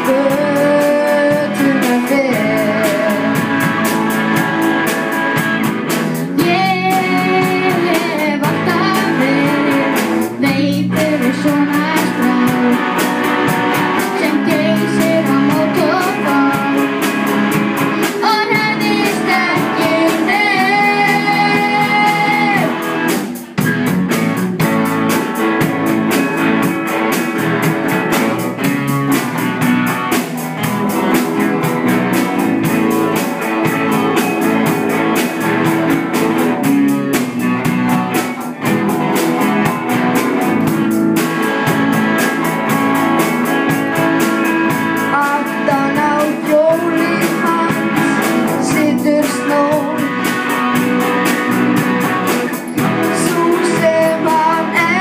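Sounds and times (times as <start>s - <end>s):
person singing: 0.0s - 3.9s, 6.0s - 23.1s, 44.7s - 55.0s
drum kit: 0.0s - 55.0s
electric guitars: 0.0s - 55.0s
rock band playing: 0.0s - 55.0s.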